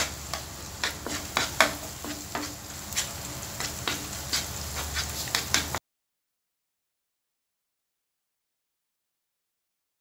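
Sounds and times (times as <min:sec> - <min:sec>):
egg sizzling in hot oil: 0:00.0 - 0:05.8
spatula scraping and tapping pan: 0:00.0 - 0:05.8.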